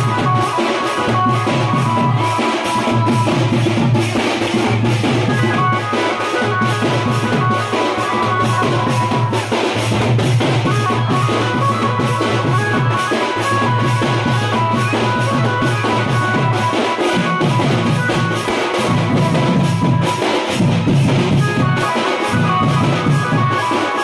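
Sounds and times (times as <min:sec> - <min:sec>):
drum beat: 0:00.0 - 0:24.0
melody of held notes: 0:10.6 - 0:24.0.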